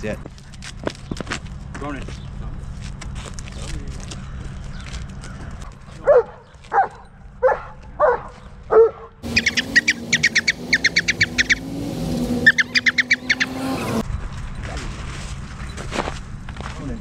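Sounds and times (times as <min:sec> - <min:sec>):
dog barking: 0:06.0 - 0:09.2
high-pitched chirps: 0:09.2 - 0:14.0.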